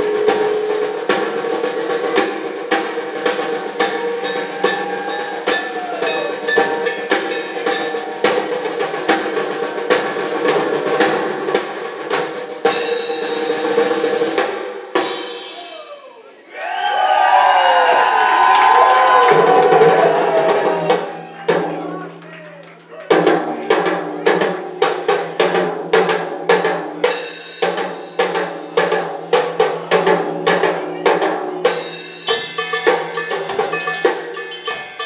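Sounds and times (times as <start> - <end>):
drum solo: 0.0 - 16.2, 17.5 - 22.3, 23.1 - 35.0
crowd cheering and whistling: 3.9 - 6.9, 15.6 - 23.1.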